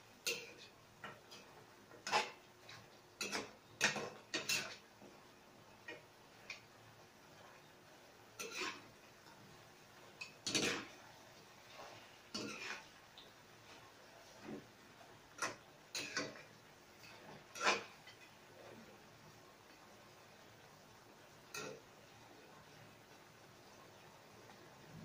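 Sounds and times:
metal utensil scraping frying pan: 0:00.2 - 0:04.9, 0:08.4 - 0:08.9, 0:10.2 - 0:11.0, 0:11.6 - 0:12.9, 0:15.3 - 0:18.7.

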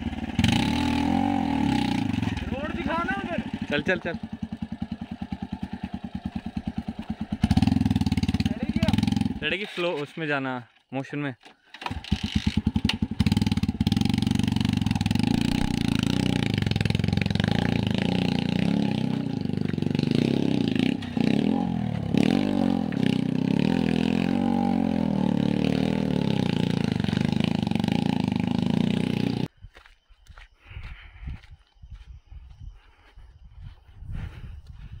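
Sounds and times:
motorcycle engine under load: 0:00.0 - 0:10.2, 0:11.4 - 0:29.5.

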